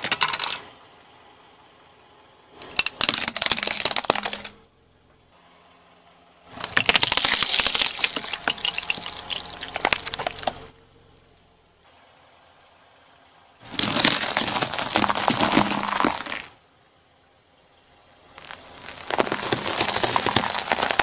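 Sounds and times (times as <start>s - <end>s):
tyre crushing plastic: 2.7s - 4.5s, 6.5s - 10.6s, 13.6s - 16.6s, 18.4s - 21.0s.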